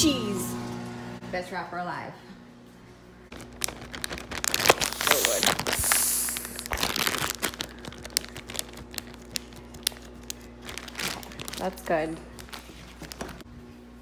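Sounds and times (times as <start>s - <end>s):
plastic bag crinkling: 3.3s - 13.4s.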